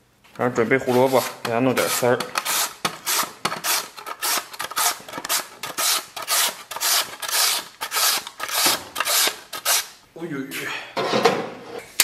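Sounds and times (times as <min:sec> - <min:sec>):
carrot rasping on grater: 0:00.8 - 0:10.0.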